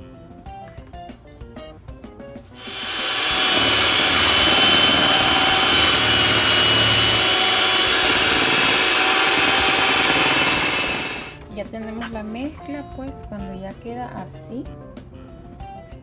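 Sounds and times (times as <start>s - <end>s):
beaters churning batter: 2.6s - 11.4s
electric hand mixer whining: 2.6s - 11.4s.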